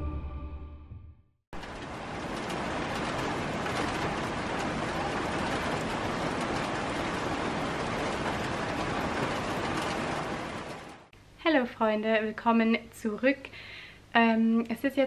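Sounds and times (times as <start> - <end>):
steady rain falling: 1.6 - 11.1.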